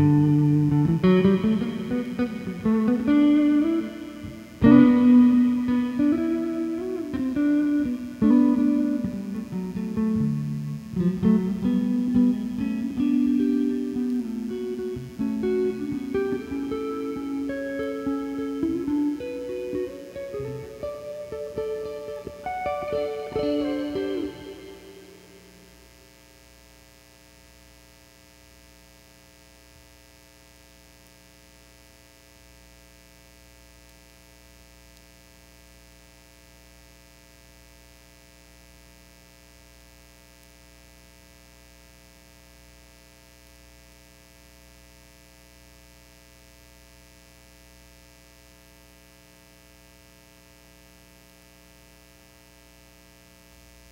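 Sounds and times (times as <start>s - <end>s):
plucked string instrument: 0.0s - 25.7s
steady low hum: 0.0s - 52.8s.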